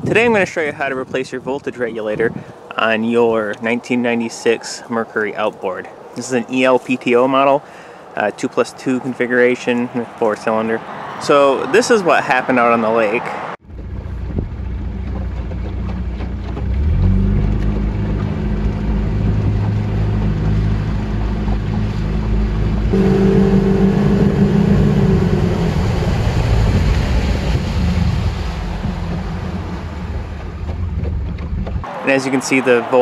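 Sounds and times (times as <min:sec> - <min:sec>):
wind noise: 0:00.0 - 0:03.9, 0:13.7 - 0:31.9
outboard engine running: 0:13.7 - 0:31.8
water noise: 0:13.7 - 0:33.0.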